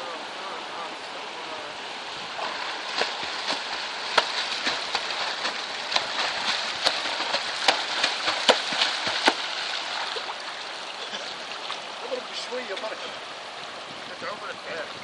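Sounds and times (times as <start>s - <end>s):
swim fins splashing water: 2.1s - 13.0s.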